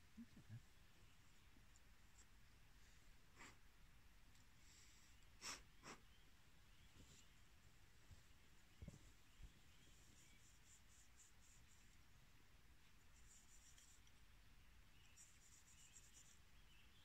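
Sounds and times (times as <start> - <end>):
small bird chirping trills: 4.6 - 12.1, 12.9 - 17.0.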